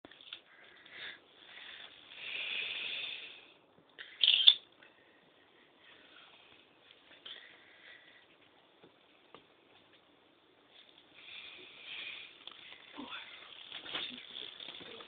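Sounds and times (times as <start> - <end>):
plastic bag rustling and crinkling: 12.4 - 15.0.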